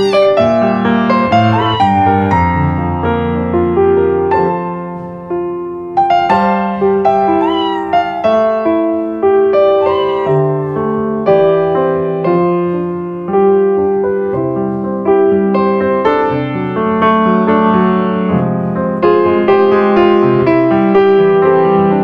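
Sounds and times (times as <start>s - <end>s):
kitten mewing: 0.0s - 2.6s, 7.2s - 8.7s, 9.7s - 10.7s
gentle piano music: 0.0s - 22.0s.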